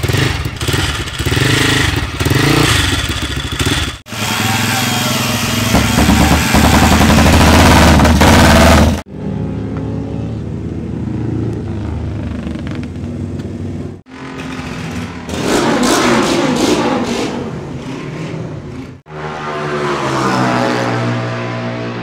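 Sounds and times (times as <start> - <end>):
motorcycle engine idling: 0.0 - 4.5
motorcycle engine revving: 0.0 - 22.0.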